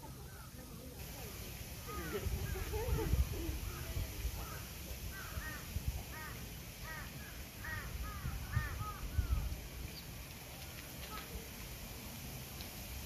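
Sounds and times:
crows cawing: 0:04.4 - 0:09.4.

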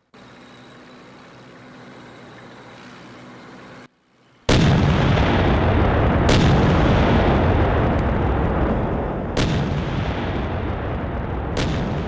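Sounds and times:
heavy rumble: 0:04.5 - 0:12.0
sharp cannon crack: 0:04.5 - 0:12.0
tank gunfire: 0:04.5 - 0:12.0.

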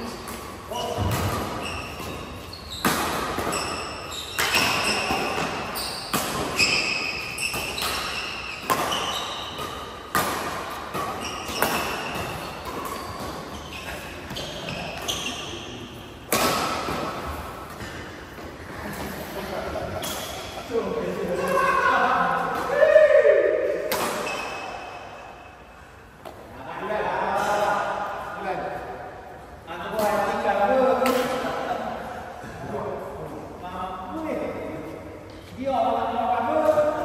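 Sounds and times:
rackets hitting shuttlecock: 0:00.0 - 0:15.4, 0:16.2 - 0:18.6, 0:23.6 - 0:25.4
shoes squeaking on court floor: 0:00.0 - 0:21.7, 0:24.0 - 0:25.5.

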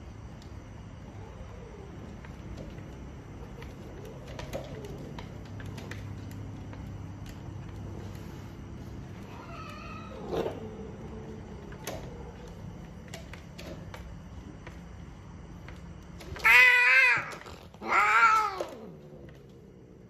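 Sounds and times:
cat mating yowls: 0:16.4 - 0:19.0.

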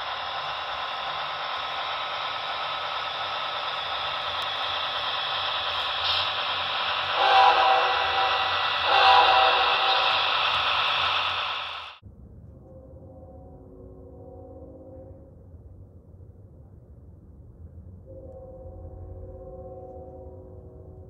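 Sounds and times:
model locomotive engine drone: 0:00.0 - 0:12.0
locomotive horn blasts: 0:07.0 - 0:10.2.

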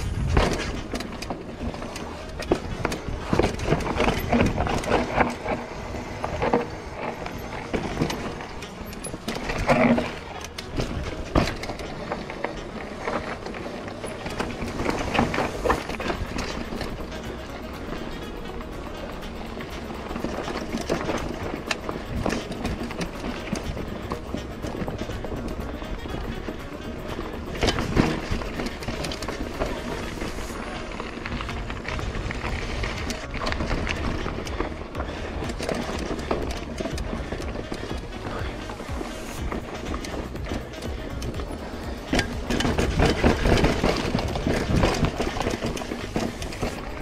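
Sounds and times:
wind rumble on microphone: 0:00.0 - 0:01.8
bike knocking and rattling: 0:00.0 - 0:47.0
steady rushing noise: 0:00.0 - 0:47.0
tyres crunching over stones: 0:00.0 - 0:47.0.

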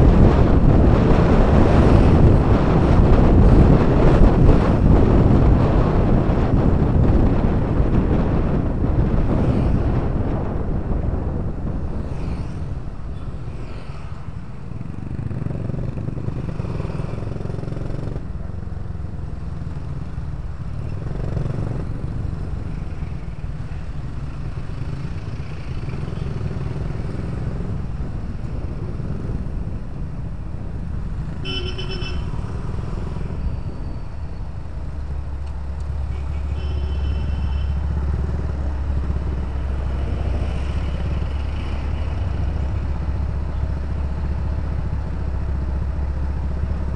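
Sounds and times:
traffic noise: 0:00.0 - 0:46.9
vehicle horn: 0:31.4 - 0:32.7, 0:36.0 - 0:38.0.

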